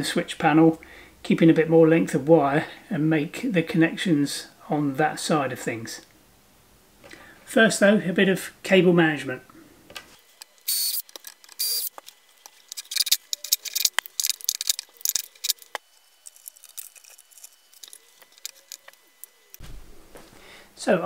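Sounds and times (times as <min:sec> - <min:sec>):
wire rasps: 0:10.2 - 0:19.6
small clicks and rattles: 0:10.4 - 0:19.6.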